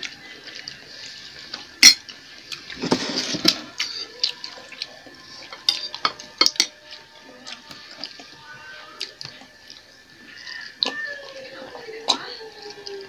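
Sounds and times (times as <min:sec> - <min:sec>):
cutlery clinking on ceramic bowls: 0:01.8 - 0:02.2, 0:05.4 - 0:06.8.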